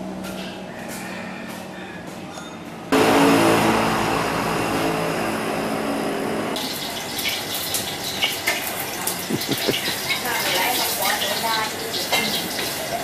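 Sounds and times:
steady rushing noise: 3.0 - 6.6.

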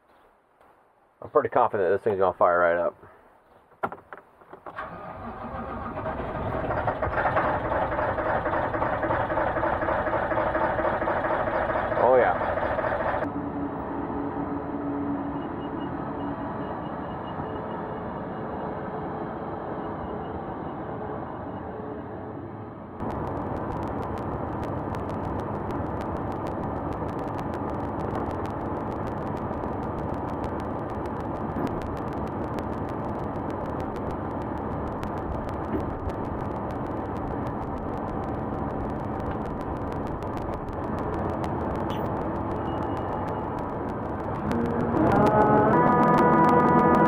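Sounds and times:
diesel engine running: 4.7 - 17.1, 23.0 - 47.0.

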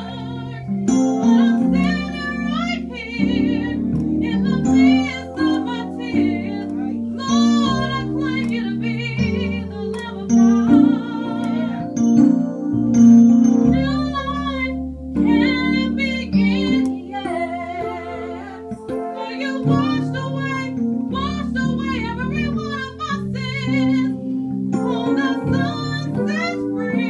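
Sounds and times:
sustained accompaniment chords: 0.0 - 27.0
person singing with heavy vibrato: 13.8 - 21.3.

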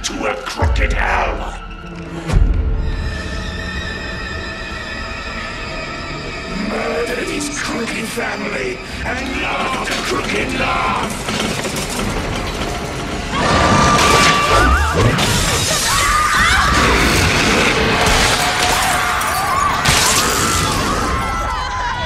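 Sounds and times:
tense horror music: 0.0 - 22.0
glass shattering: 18.0 - 21.2.

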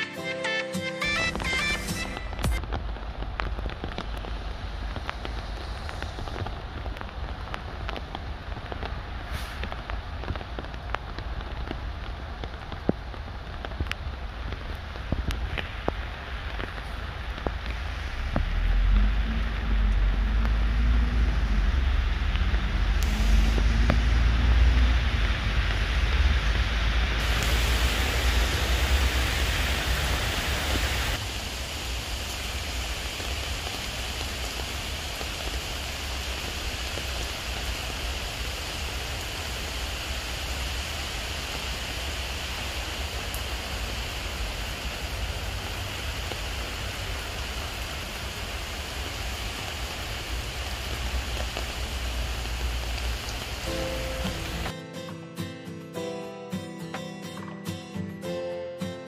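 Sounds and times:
rain on leaves and pavement: 1.1 - 54.8
low rumble: 15.1 - 32.5.

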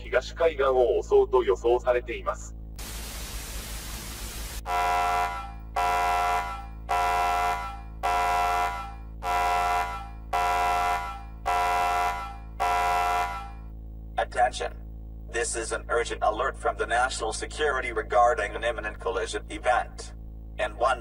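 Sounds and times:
tv static hiss: 2.8 - 4.7
buzzy emergency alarm blasts: 4.4 - 13.8.

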